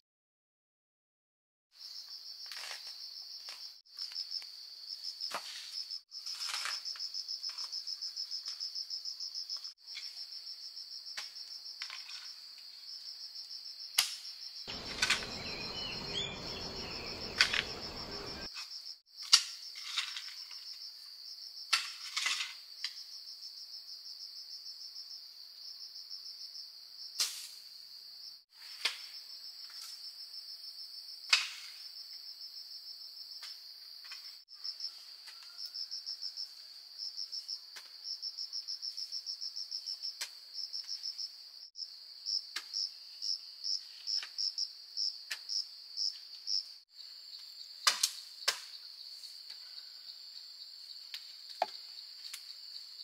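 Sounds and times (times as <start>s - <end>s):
insects trilling: 1.8s - 21.7s, 31.8s - 53.0s.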